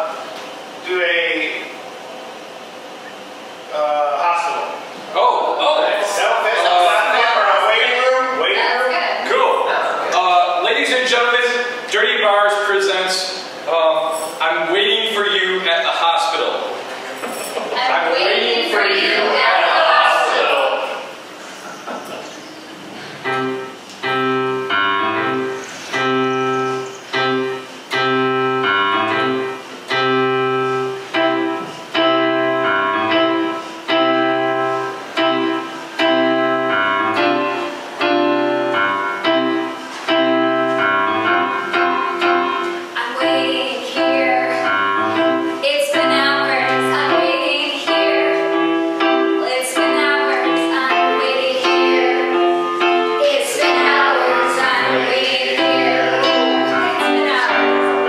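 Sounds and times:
electric piano chords: 0:00.0 - 0:58.0
keyboard bass line: 0:23.2 - 0:58.0.

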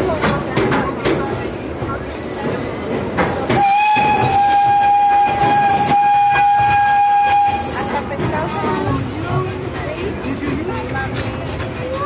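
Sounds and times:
rumble of passenger cars: 0:00.0 - 0:12.0
locomotive whistle blast: 0:03.6 - 0:07.8.

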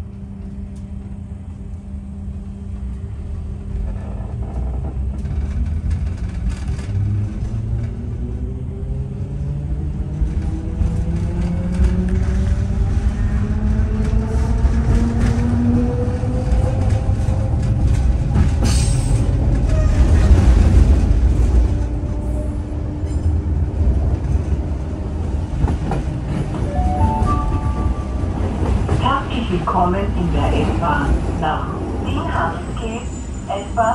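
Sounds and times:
wheels rumbling on rails: 0:00.0 - 0:33.9.

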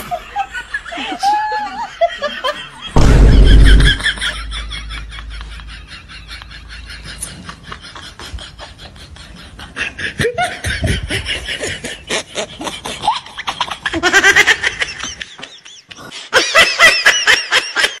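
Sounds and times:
people laughing: 0:00.0 - 0:18.0.

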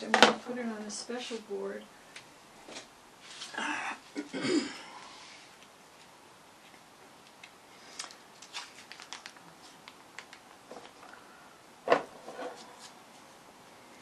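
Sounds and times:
faint clicks and taps: 0:05.6 - 0:11.2.

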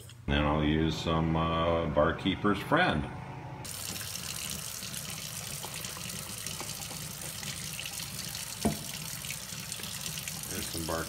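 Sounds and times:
tap running into metal sink: 0:08.4 - 0:09.4.

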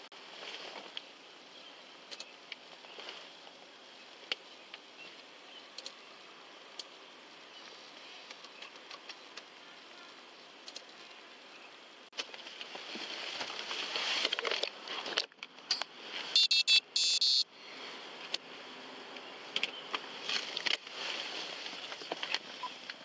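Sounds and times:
rustling and handling noise: 0:00.2 - 0:01.4, 0:02.1 - 0:05.3, 0:12.1 - 0:16.4, 0:17.8 - 0:23.0
short electronic alert tones: 0:16.4 - 0:17.5.

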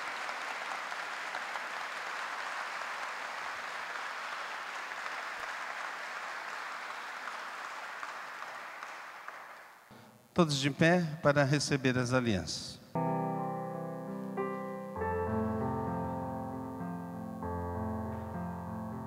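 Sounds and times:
crowd applauding: 0:00.0 - 0:09.9.

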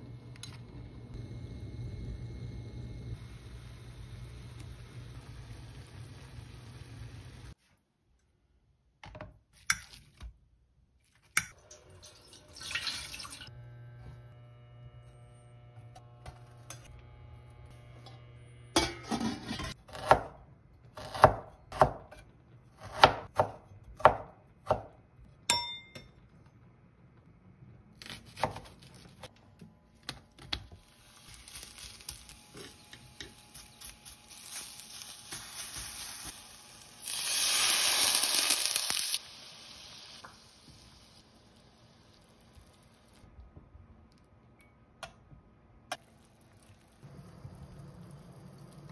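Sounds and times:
water hissing in hot pan: 0:34.5 - 0:43.1.

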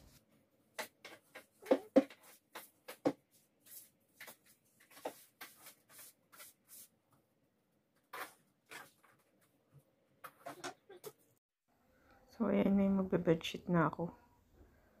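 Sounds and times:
household things being handled: 0:00.0 - 0:07.1, 0:08.0 - 0:11.4.

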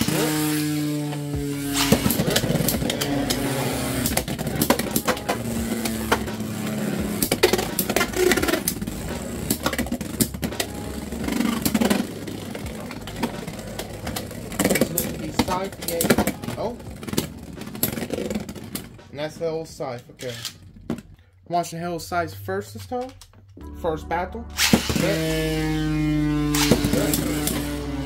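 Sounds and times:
spinning tops whirring: 0:00.0 - 0:19.0, 0:24.6 - 0:28.0
tops clicking and clacking: 0:01.6 - 0:19.2.

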